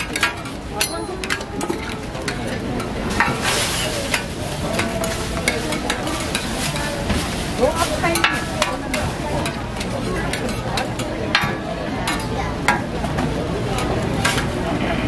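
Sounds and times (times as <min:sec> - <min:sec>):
metal spatula clicks and scrapes: 0:00.0 - 0:07.0, 0:08.2 - 0:12.3.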